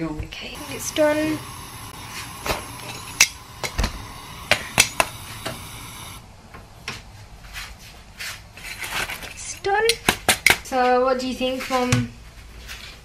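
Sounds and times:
gas stove hiss: 0.4 - 6.3.

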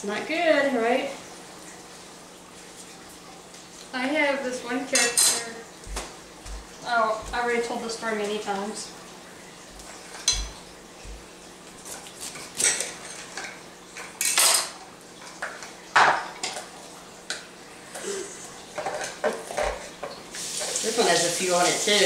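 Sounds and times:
kitchen utensils clinking: 4.9 - 5.6, 9.9 - 10.7, 12.3 - 16.7, 18.0 - 22.0.

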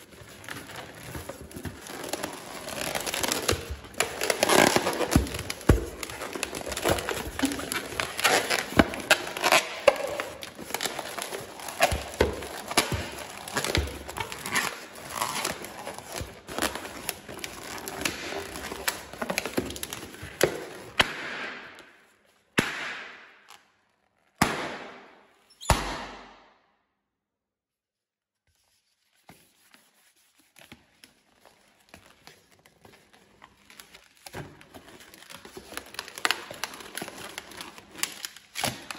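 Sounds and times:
balloon squeaking and crackling: 0.1 - 20.7.

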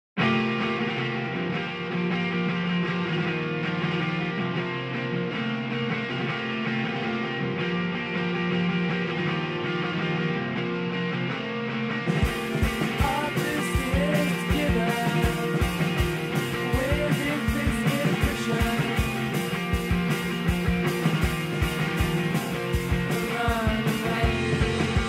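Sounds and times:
held guitar chords: 0.2 - 25.0
steady drum beat: 12.1 - 25.0.

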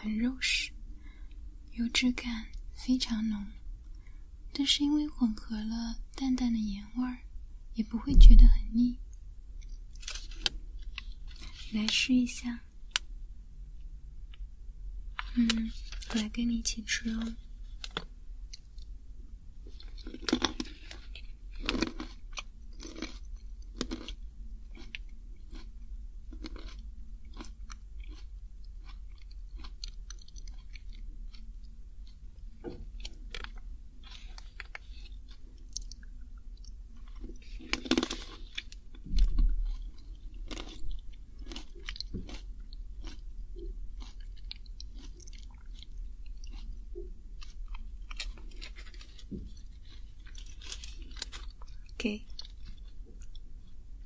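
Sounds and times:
dull low thump: 8.1 - 8.8
crunchy chewing of nuts: 9.6 - 11.8, 19.6 - 53.9.

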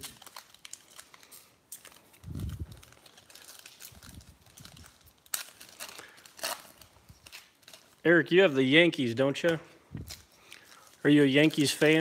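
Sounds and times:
wrapper snapping: 0.0 - 8.0, 9.4 - 12.0
foil wrapper crinkling: 0.0 - 8.5, 9.4 - 12.0.

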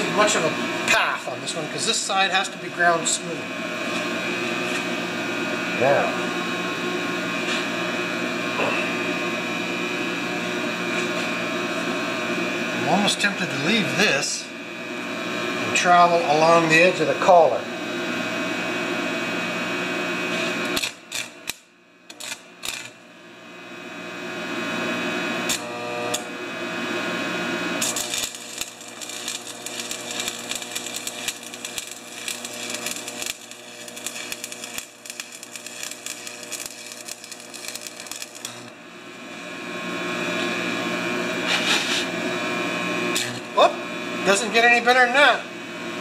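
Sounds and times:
arc welding crackling: 0.0 - 4.9, 20.3 - 23.1, 25.4 - 40.4
electrical hum: 0.0 - 46.0.

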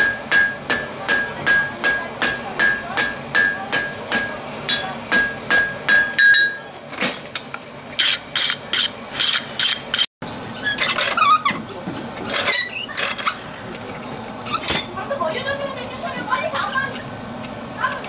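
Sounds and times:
metal clanking on metal: 0.0 - 13.4
metal squeaks: 6.4 - 13.5, 14.4 - 14.9.

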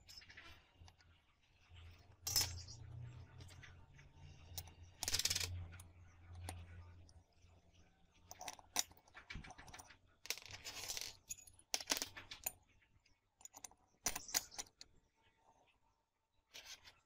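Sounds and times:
metal parts clinking: 1.9 - 2.8, 4.5 - 5.8, 8.3 - 12.6, 13.4 - 14.8.

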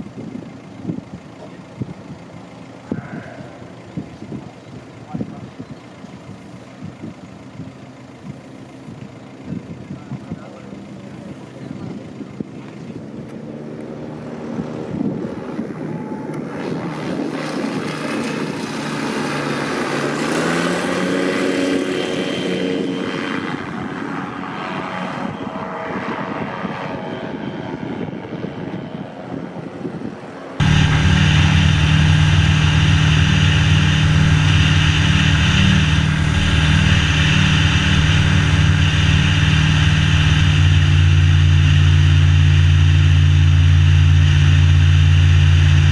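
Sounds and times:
aircraft engine and propeller: 0.0 - 45.9.

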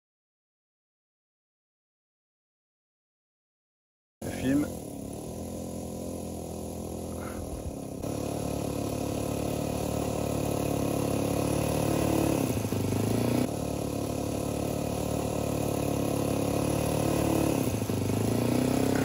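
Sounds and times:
model plane engine running: 4.2 - 19.0.

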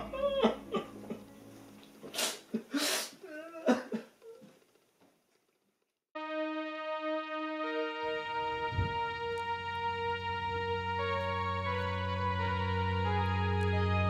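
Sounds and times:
young man sobbing: 0.0 - 1.0, 2.5 - 4.4
slow music of held notes: 0.0 - 3.6, 6.2 - 14.0.

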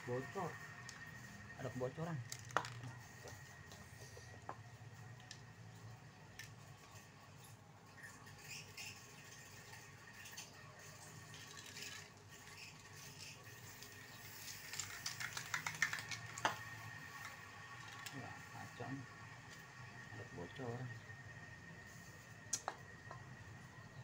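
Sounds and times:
spray can rattling: 11.5 - 16.7.

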